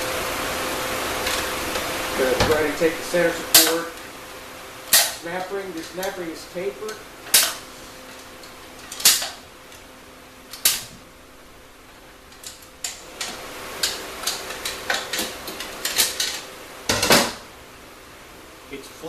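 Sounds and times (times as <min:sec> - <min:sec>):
metal tool clicking and clanking: 0:04.9 - 0:06.2, 0:06.9 - 0:07.6, 0:08.4 - 0:09.4, 0:12.3 - 0:17.3.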